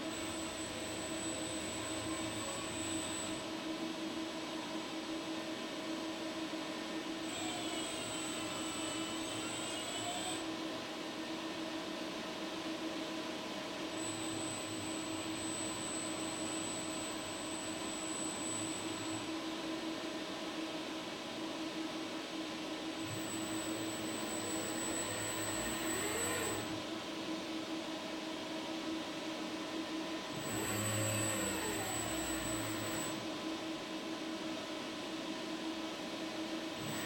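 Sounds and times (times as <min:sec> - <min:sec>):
steady mechanical hum: 0:00.0 - 0:37.0
robot servo motors whining: 0:00.2 - 0:03.4, 0:07.3 - 0:10.4, 0:23.1 - 0:26.8, 0:30.4 - 0:33.2, 0:36.8 - 0:37.0.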